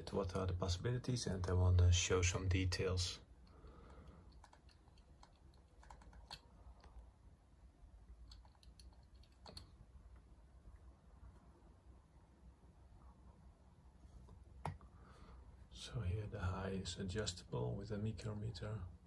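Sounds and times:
faint clicks of metal parts: 0:03.4 - 0:07.1.

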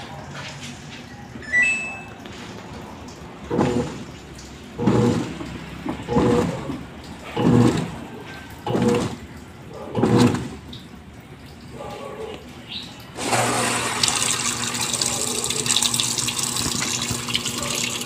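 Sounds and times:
short high tone: 0:01.4 - 0:02.2
washing machine swishing laundry: 0:01.7 - 0:10.7, 0:13.2 - 0:15.7
water filling the tub: 0:02.2 - 0:18.0.

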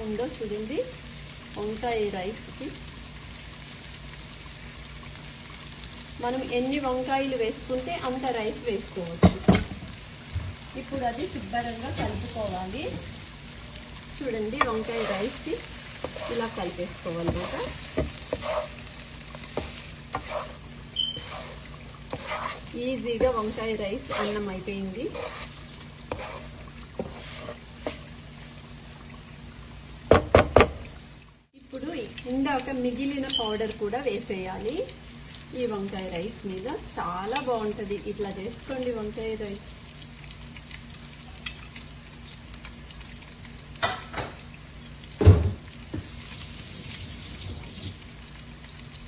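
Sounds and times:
food sizzling in a pan: 0:00.0 - 0:49.0
spatula scraping a pan: 0:11.2 - 0:13.3, 0:14.5 - 0:28.1.

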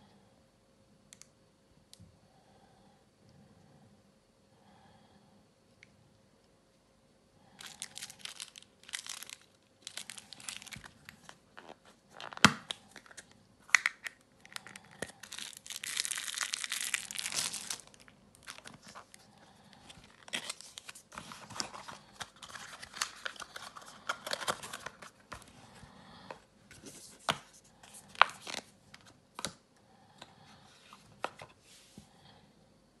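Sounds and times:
plastic wrapper crinkling: 0:07.6 - 0:25.5, 0:27.8 - 0:29.5.

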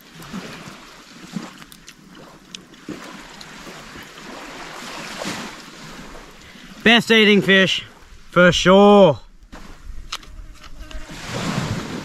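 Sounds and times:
small waves on beach: 0:00.0 - 0:12.0
wind hiss: 0:03.0 - 0:12.0.

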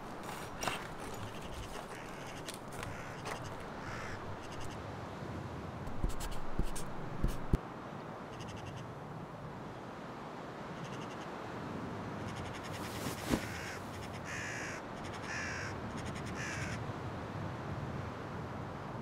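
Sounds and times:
pen scratching on paper: 0:06.0 - 0:07.6.

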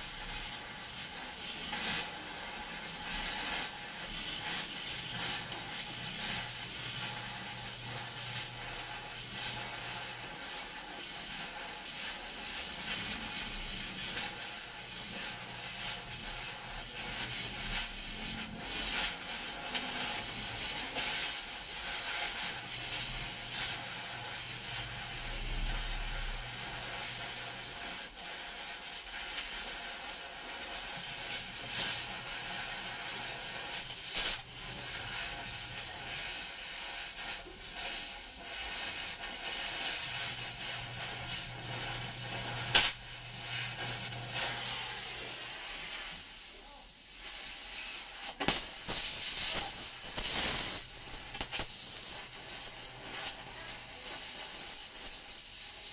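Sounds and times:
cutting torch hissing: 0:00.0 - 0:55.9
sharp crack: 0:42.7 - 0:43.0, 0:48.3 - 0:51.8.

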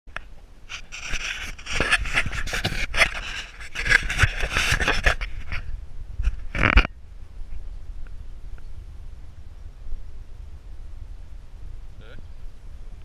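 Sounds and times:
low wind rumble: 0:00.2 - 0:13.0
camera handling scraping: 0:00.7 - 0:07.0.

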